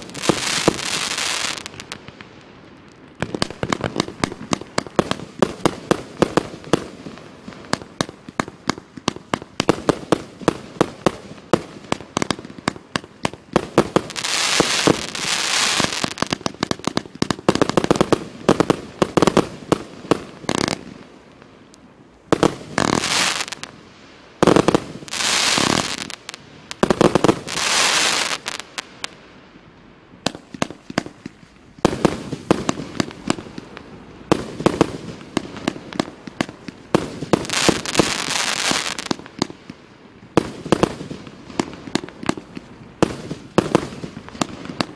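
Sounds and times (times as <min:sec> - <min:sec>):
fireworks hissing: 0:00.0 - 0:02.4, 0:13.6 - 0:19.6, 0:22.3 - 0:29.2, 0:31.9 - 0:39.2
fireworks bangs and pops: 0:00.0 - 0:21.1, 0:22.3 - 0:23.8, 0:24.4 - 0:29.2, 0:30.2 - 0:44.9.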